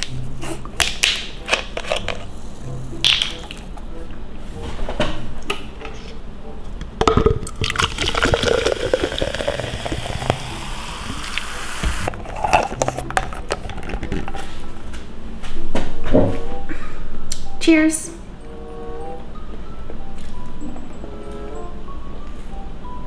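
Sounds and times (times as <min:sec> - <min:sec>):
soda pouring and fizzing: 0:07.4 - 0:13.2.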